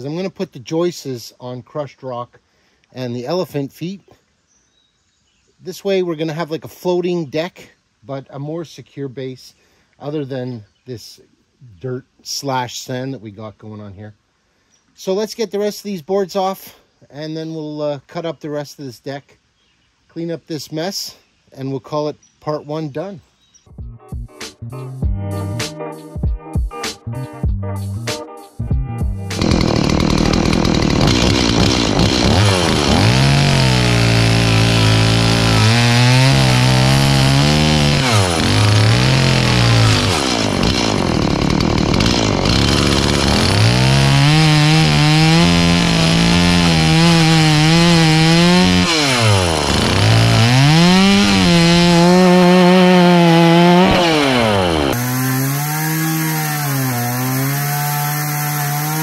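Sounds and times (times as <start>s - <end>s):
chainsaw cutting wood: 29.3s - 59.0s.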